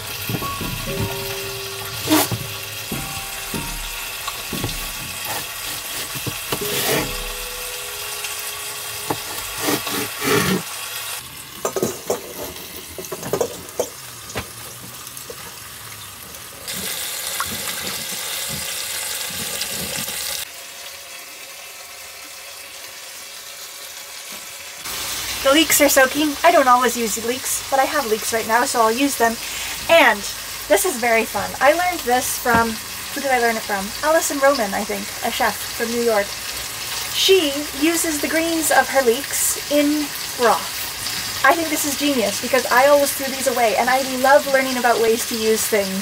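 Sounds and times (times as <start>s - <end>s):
chicken sizzling in a pan: 0.0s - 46.0s.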